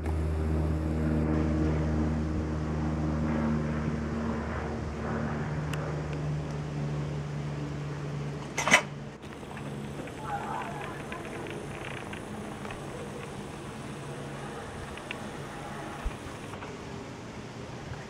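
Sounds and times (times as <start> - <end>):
propeller plane drone overhead: 0.0 - 18.0.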